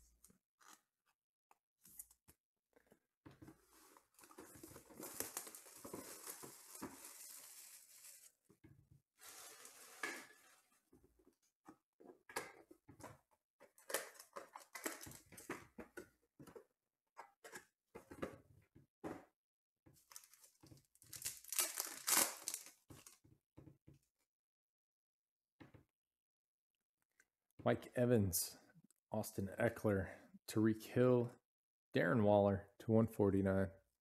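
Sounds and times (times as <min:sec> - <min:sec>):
cardboard box rustling and sliding: 0:09.2 - 0:10.7.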